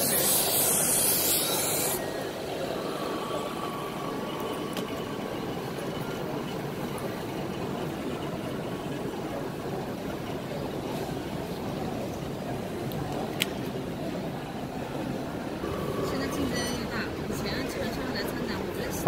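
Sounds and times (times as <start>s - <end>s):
loud hiss of air: 0.0s - 2.0s.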